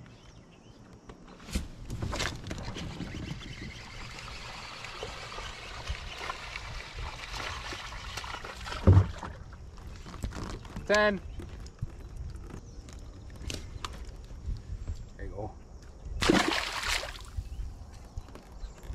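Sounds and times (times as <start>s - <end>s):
fish splashing in water: 16.2s - 17.4s.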